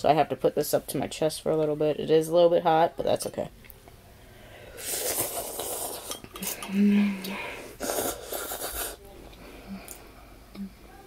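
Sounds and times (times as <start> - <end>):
person slurping broth: 4.8 - 9.0
person slurping noodles: 4.8 - 9.0
person humming: 6.6 - 9.0.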